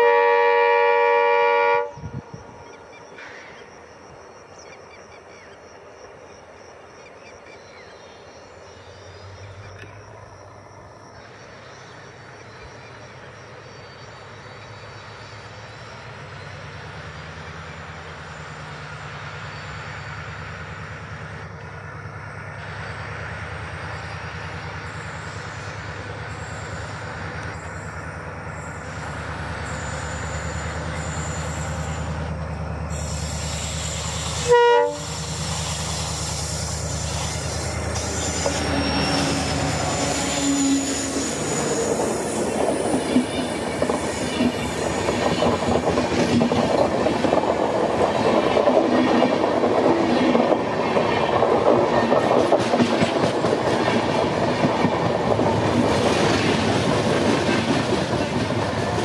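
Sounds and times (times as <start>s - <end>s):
train horn blast: 0.0s - 2.2s, 32.9s - 35.4s, 37.2s - 41.7s
diesel locomotive engine hum: 0.0s - 59.0s
wheel squeal: 24.9s - 45.6s
wheels clattering over rail joints: 41.5s - 59.0s.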